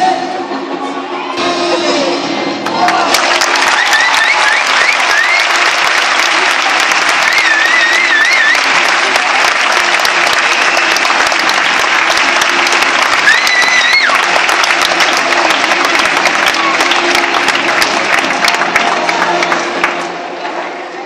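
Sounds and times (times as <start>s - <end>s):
crowd applauding: 2.6s - 20.4s
person whistling loudly: 3.7s - 5.7s, 7.2s - 8.8s.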